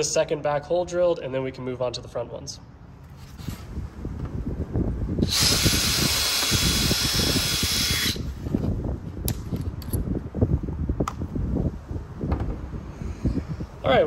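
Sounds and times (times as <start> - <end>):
cordless drill whine: 5.2 - 8.4.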